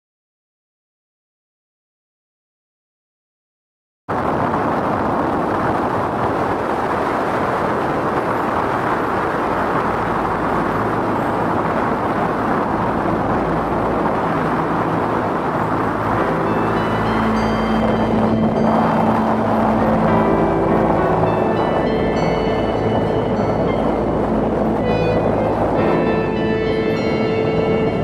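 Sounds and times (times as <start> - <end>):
car road and tyre noise: 4.1 - 28.0
faint music: 8.2 - 28.0.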